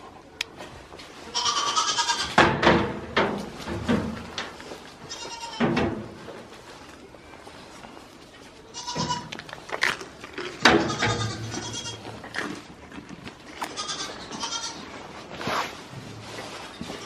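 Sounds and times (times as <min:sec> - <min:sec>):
goat kids bleating: 0:01.3 - 0:02.4, 0:05.0 - 0:05.7, 0:08.6 - 0:09.5, 0:10.5 - 0:12.4, 0:13.5 - 0:15.1.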